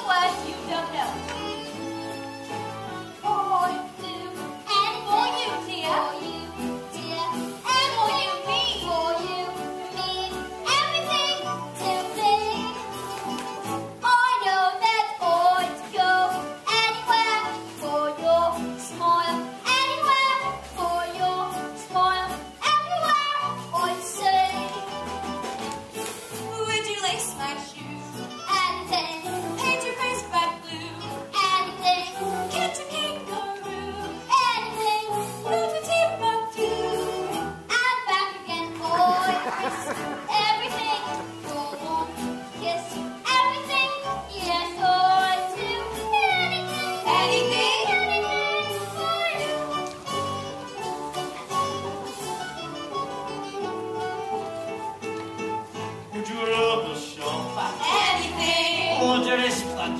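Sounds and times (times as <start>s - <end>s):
instrumental accompaniment: 0.0s - 59.9s
group singing show tune: 56.1s - 59.9s.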